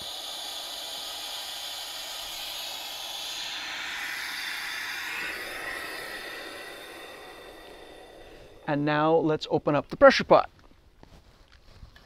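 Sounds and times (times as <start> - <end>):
compressed air hissing from valve: 0.0 - 9.2.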